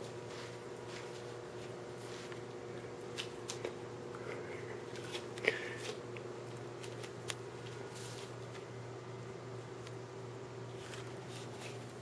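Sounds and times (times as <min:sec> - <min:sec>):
steady low hum: 0:00.0 - 0:12.0
paper rustling and crinkling: 0:10.7 - 0:12.0.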